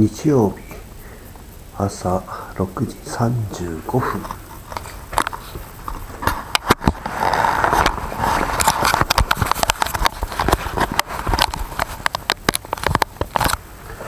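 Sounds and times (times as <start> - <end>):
rustling hiss: 0.0 - 14.0
sharp clicks and knocks: 3.5 - 13.6.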